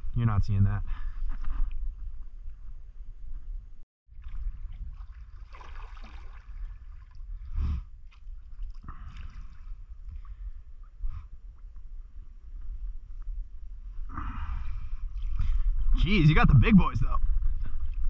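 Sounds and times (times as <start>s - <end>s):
water sloshing around paddle: 4.1s - 7.4s
low rumble: 8.8s - 18.0s.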